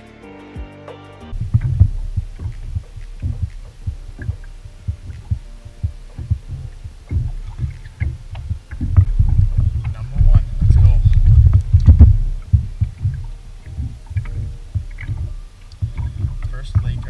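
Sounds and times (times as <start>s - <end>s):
faint light ticks: 1.4s - 9.1s.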